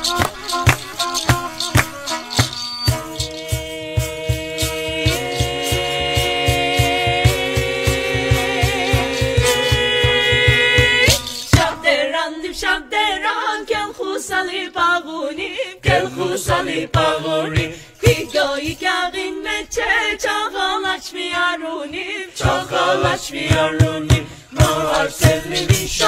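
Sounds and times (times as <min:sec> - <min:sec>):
drum beat: 0:00.0 - 0:11.8, 0:22.5 - 0:26.0
voices singing a song: 0:03.0 - 0:26.0.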